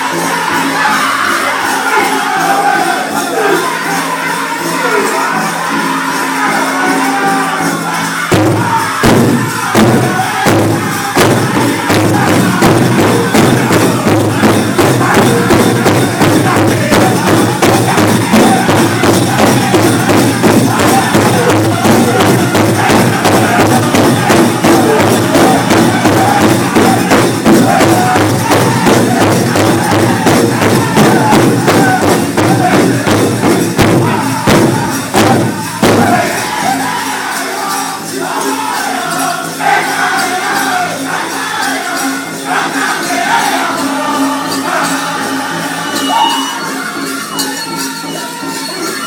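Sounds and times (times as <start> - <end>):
group singing in unison: 0.0 - 49.0
loud big drum beat: 4.8 - 46.3.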